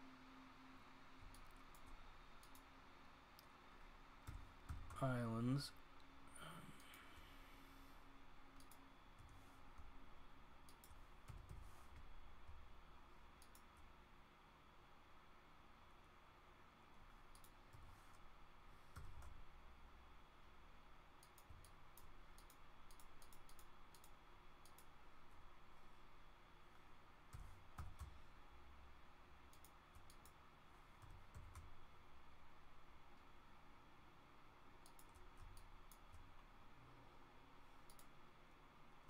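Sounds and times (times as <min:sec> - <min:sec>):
computer mouse and keyboard clicking: 0:01.2 - 0:02.7, 0:08.6 - 0:09.9, 0:10.6 - 0:12.6, 0:13.3 - 0:13.8, 0:17.3 - 0:18.2, 0:18.9 - 0:19.5, 0:21.2 - 0:25.0, 0:27.3 - 0:28.3, 0:29.4 - 0:31.8, 0:34.8 - 0:36.4, 0:37.8 - 0:38.2.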